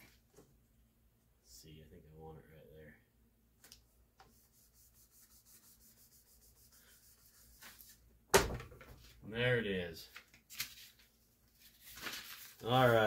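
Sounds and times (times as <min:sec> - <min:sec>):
hand rubbing sticker on board: 0:04.2 - 0:07.9.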